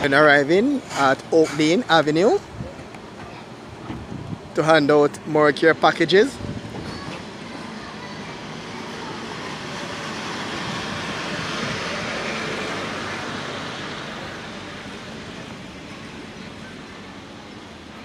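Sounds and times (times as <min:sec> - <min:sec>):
vehicle passing by: 0:06.2 - 0:17.6.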